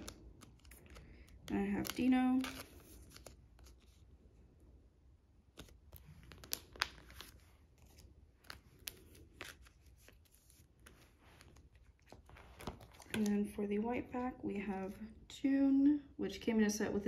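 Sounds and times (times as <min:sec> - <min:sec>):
plastic sleeve crinkling and clicking: 0:00.0 - 0:04.0, 0:05.5 - 0:13.5.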